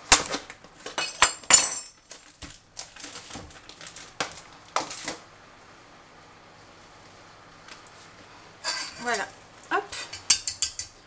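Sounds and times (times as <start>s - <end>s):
utensils rattling: 10.0s - 11.0s.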